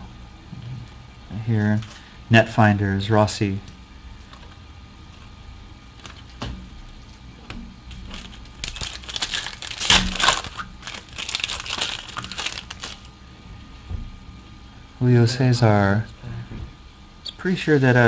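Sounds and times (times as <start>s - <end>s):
foil pack crinkling: 7.9s - 13.1s
trading cards clicking: 8.1s - 13.1s.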